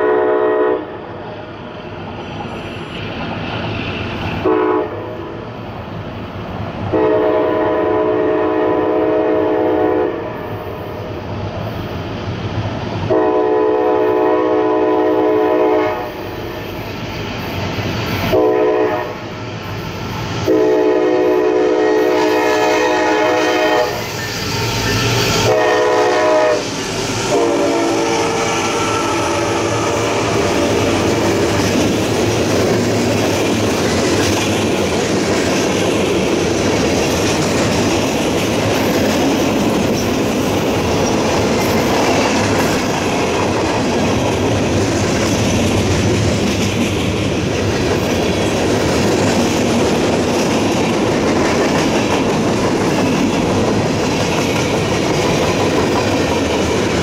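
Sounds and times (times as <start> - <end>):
locomotive horn blasts: 0.0 - 0.9, 4.4 - 5.2, 6.9 - 10.5, 13.1 - 16.2, 18.3 - 19.2, 20.4 - 24.1, 25.4 - 26.7, 27.3 - 30.7
train cars rumbling and clacking: 0.0 - 57.0.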